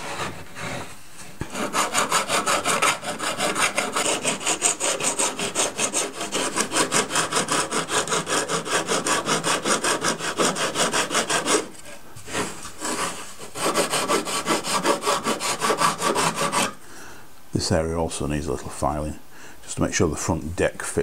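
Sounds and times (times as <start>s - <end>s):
sanding block rubbing on wood: 1.4s - 11.7s, 12.3s - 16.8s.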